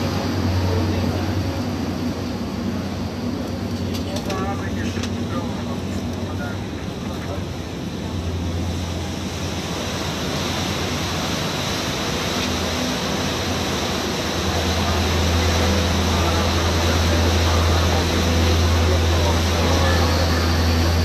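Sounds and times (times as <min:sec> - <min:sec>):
boat engine droning: 0:00.0 - 0:21.0
water washing against hull: 0:00.0 - 0:21.0.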